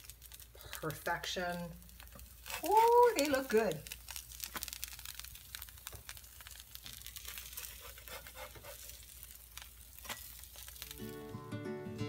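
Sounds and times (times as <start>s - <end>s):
pancakes sizzling on griddle: 0.0s - 11.4s
metal spatula scraping griddle: 7.3s - 9.2s, 10.0s - 10.7s.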